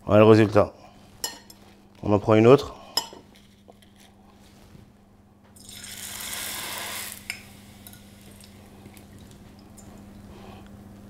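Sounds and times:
steady low hum: 0:00.0 - 0:05.6, 0:07.0 - 0:11.0
food sizzling in hot oil: 0:05.6 - 0:08.5.

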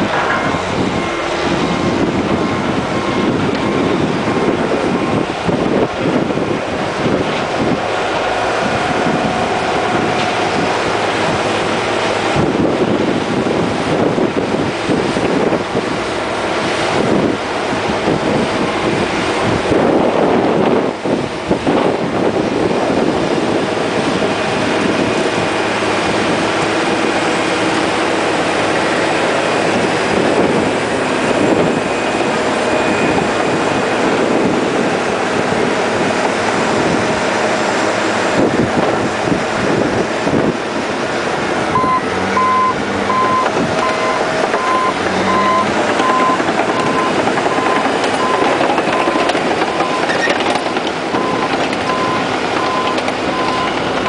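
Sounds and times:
bulldozer diesel engine: 0:00.0 - 0:54.0
reversing alarm beeping: 0:00.1 - 0:04.2, 0:30.9 - 0:33.8, 0:41.7 - 0:54.0.

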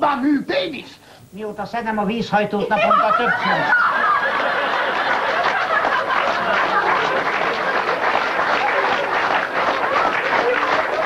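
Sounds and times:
audience laughing: 0:02.8 - 0:11.0
audience applauding: 0:03.7 - 0:11.0.

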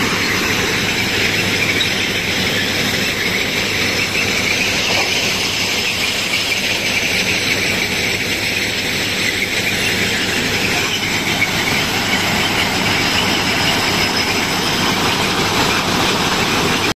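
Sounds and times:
railway machine mechanical din: 0:00.0 - 0:16.9.

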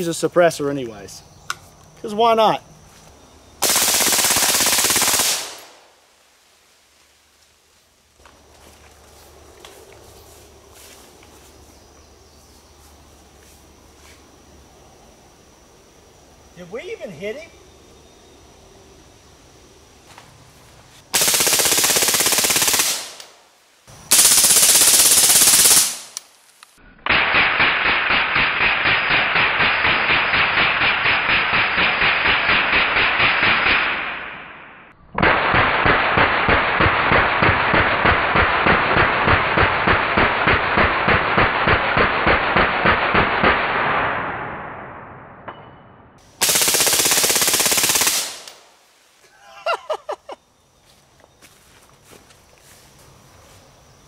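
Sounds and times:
suppressed rifle firing bursts: 0:03.6 - 0:05.7, 0:21.2 - 0:23.2, 0:24.1 - 0:26.1, 0:46.4 - 0:48.5
slowed-down gunshots: 0:03.6 - 0:05.8, 0:27.0 - 0:45.6.

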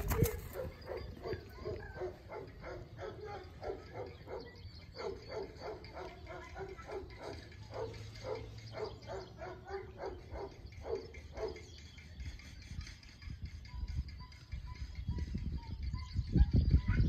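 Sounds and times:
dog barking: 0:00.1 - 0:11.7.

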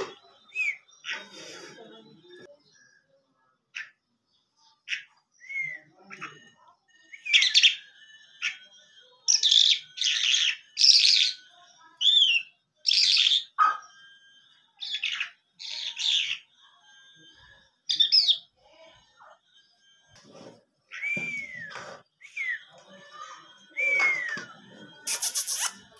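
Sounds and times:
lark singing: 0:09.3 - 0:14.0, 0:14.8 - 0:16.6, 0:17.9 - 0:18.5.

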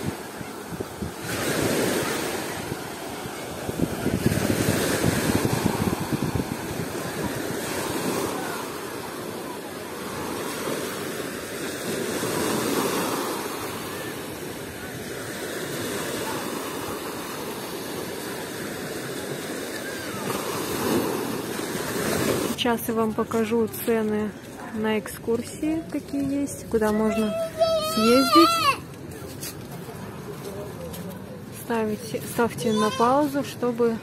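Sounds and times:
wind buffeting microphone: 0:00.0 - 0:08.4
small waves washing onto beach: 0:00.0 - 0:34.0.

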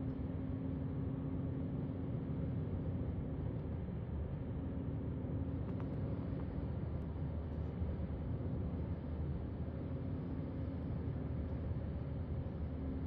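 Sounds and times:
faint clicks: 0:05.6 - 0:06.5.

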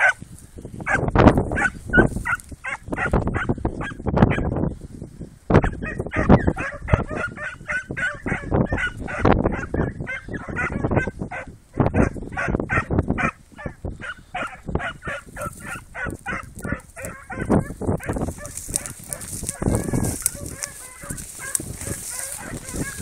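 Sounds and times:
hound puppies yelping and baying: 0:05.6 - 0:23.0.

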